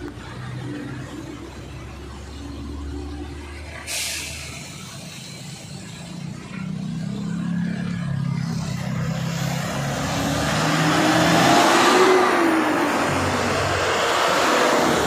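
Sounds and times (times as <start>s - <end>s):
tyre hiss on wet road: 3.8s - 6.1s.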